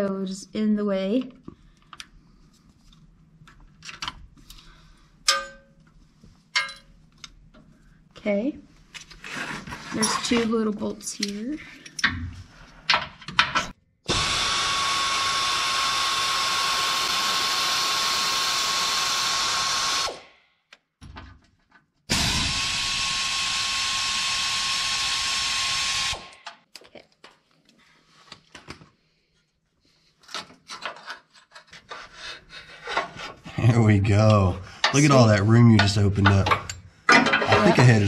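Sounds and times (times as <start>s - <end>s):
air ratchet whining: 14.1s - 20.2s, 22.1s - 26.4s.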